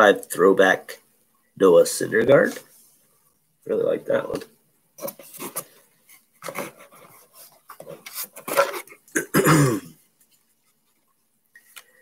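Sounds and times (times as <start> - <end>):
man coughing: 9.1 - 10.0.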